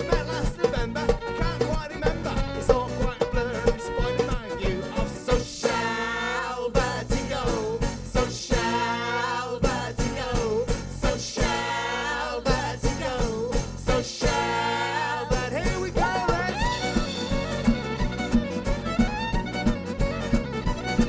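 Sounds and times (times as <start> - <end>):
fiddle melody: 0.0 - 7.0, 14.4 - 21.0
bass: 0.0 - 21.0
drum kit: 0.0 - 21.0
strummed acoustic guitar: 0.0 - 21.0.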